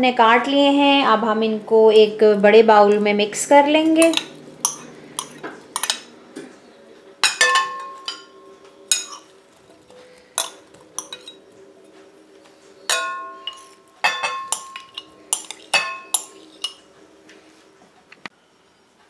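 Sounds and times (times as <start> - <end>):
metal spoon clinking on glass: 4.0 - 6.1, 7.2 - 9.3, 10.4 - 11.4, 12.9 - 16.8.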